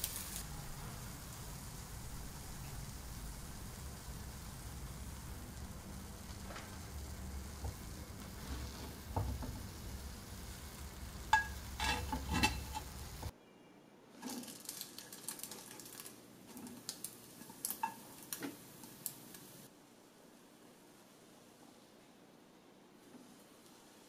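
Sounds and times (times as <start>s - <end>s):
butter sizzling in a skillet: 0.0s - 13.3s, 16.8s - 19.7s
low steady hum: 0.0s - 14.1s
spatula scraping a pan: 7.5s - 13.3s
metal tongs clicking on a pan: 11.2s - 13.3s, 16.8s - 19.5s.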